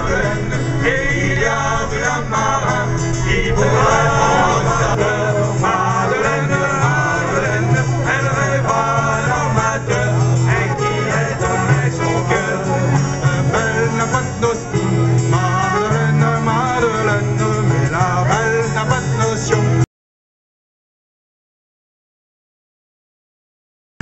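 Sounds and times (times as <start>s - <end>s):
people singing: 0.0s - 19.8s
steady bass: 0.0s - 19.8s
live band playing dance music: 2.7s - 19.8s.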